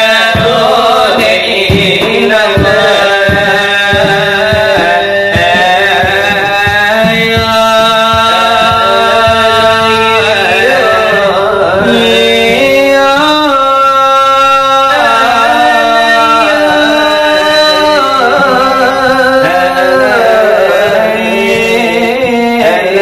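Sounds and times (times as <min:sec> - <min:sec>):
hand beats on brass trays: 0:00.0 - 0:13.6
men singing devotional chant: 0:00.0 - 0:23.0.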